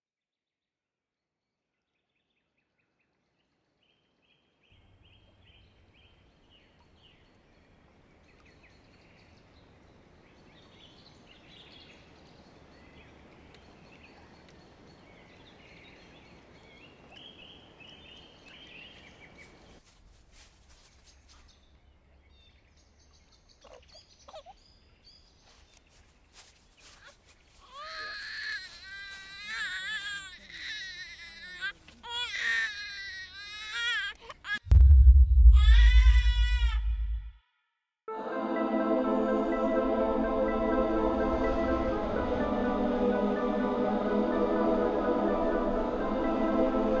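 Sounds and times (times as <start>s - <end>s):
low woodland hush: 3.3s - 33.6s.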